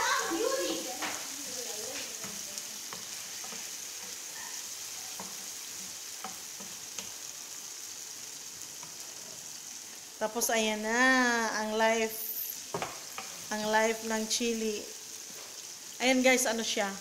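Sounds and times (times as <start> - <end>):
food sizzling in oil: 0.0 - 17.0
spatula tapping and scraping pan: 1.9 - 4.3, 5.1 - 7.3, 12.7 - 13.5.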